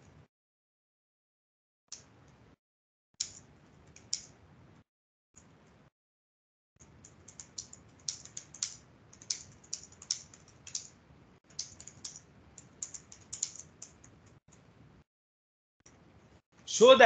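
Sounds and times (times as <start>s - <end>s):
typing on computer keyboard: 6.8s - 14.4s.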